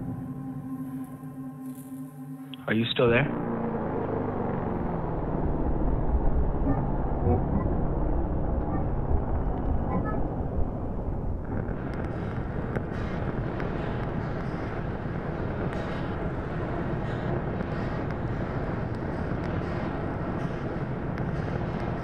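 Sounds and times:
low rumble: 3.0 - 22.0
faint crackles: 11.0 - 22.0.

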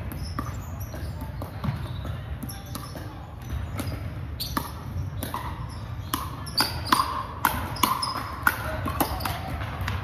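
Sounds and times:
paddles hitting plastic ball: 0.0 - 10.0.

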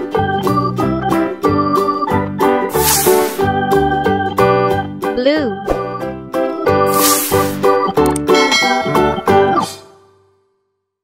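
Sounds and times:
organ-like keyboard chords: 0.0 - 2.7, 3.3 - 6.9
short hissing whoosh: 2.8 - 3.4, 6.9 - 7.6.

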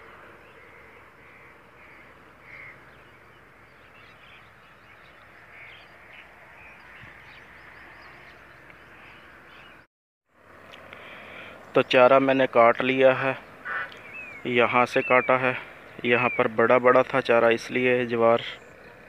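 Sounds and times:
short bird calls: 0.0 - 9.8, 13.4 - 16.8
faint outdoor background: 0.0 - 19.0.

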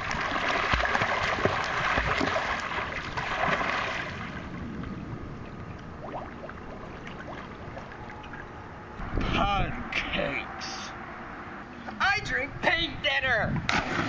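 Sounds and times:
swimming pool water splashing: 0.0 - 8.8, 13.7 - 14.0.

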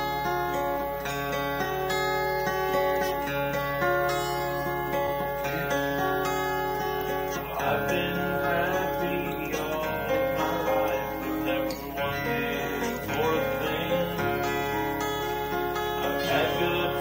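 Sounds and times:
acoustic guitar playing: 0.0 - 17.0
steady low hum: 0.0 - 17.0.

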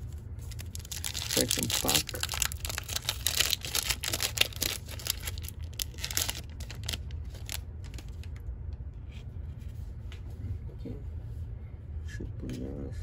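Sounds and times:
cards rustling: 0.5 - 8.3
foil wrapper tearing and crinkling: 0.5 - 8.3.

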